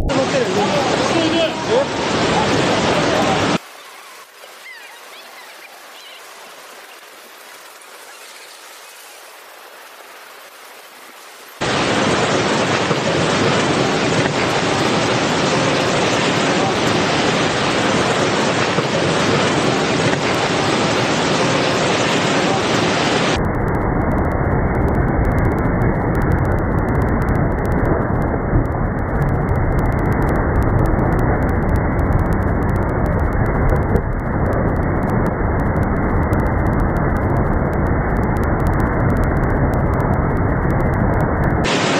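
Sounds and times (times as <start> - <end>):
floodwater rushing: 0.0 - 23.4, 25.3 - 41.9
faint hiss: 3.0 - 11.6.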